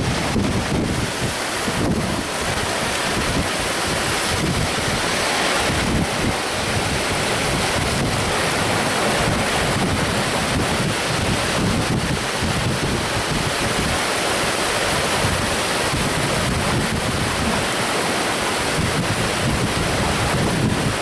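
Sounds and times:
heavy rain pouring: 0.0 - 21.0
wind buffeting microphone: 0.0 - 21.0.

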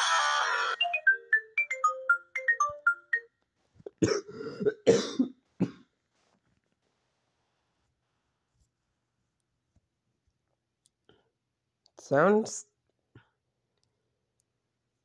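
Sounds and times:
phone ringtone melody: 0.6 - 3.3
person coughing: 3.9 - 5.9.

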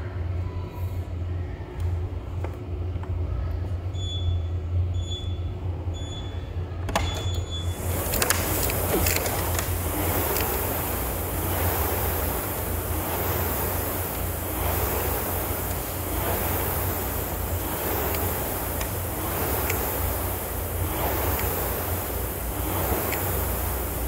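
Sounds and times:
steady low hum: 0.0 - 24.0
rowing machine flywheel whooshing: 7.0 - 24.0.

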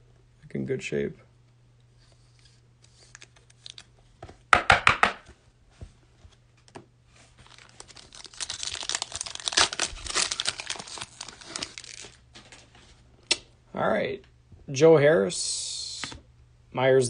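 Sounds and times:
foil wrapper crinkling and tearing: 7.4 - 12.6.

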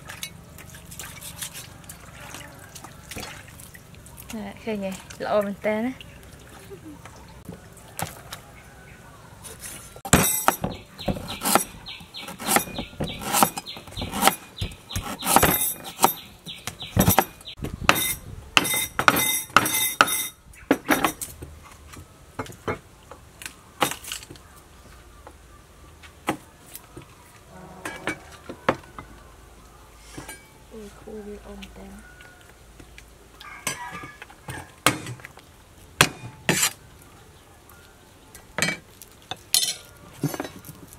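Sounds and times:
cleaver chopping meat on wood: 10.1 - 16.2, 17.9 - 20.2.

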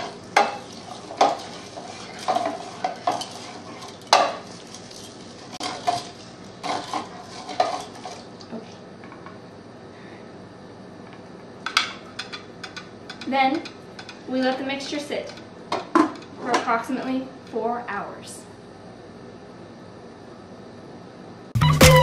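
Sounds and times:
spoon clinking and scraping bowl: 0.0 - 8.3.

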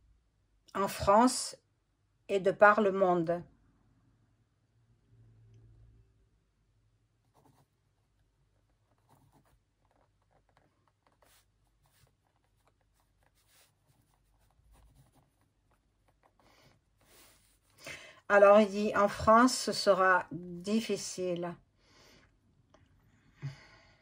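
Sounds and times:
pen scratching on paper: 7.2 - 17.8.

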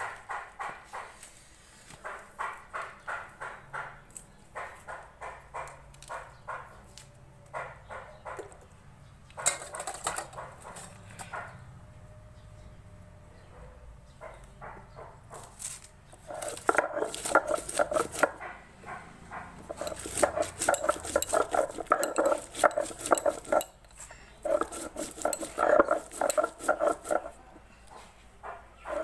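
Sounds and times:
stone roller grinding on stone: 15.4 - 18.4, 19.3 - 27.5, 28.4 - 29.0.

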